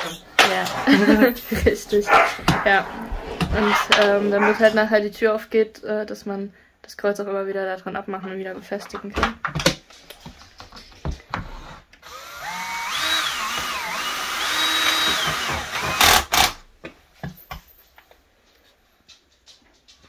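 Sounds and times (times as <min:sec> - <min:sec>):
cordless drill motor whine: 0:11.5 - 0:16.5.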